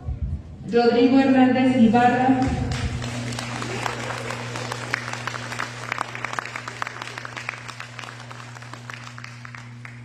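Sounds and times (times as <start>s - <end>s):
audience applauding: 2.7s - 10.0s.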